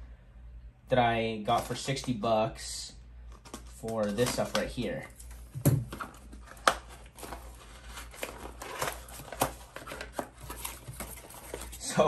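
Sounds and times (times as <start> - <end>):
packaging crinkling: 3.3 - 11.9.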